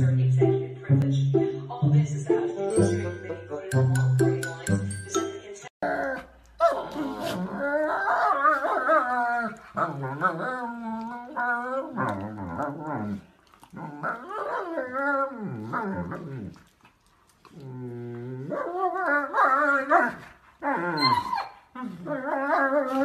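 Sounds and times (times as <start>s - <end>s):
dogs growling and whining: 5.8s - 23.0s.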